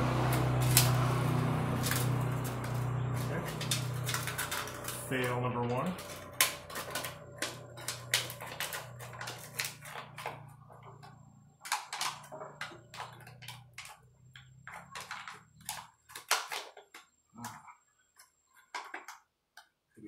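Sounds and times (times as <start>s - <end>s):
metal strips clicking and scraping: 0.3s - 17.6s.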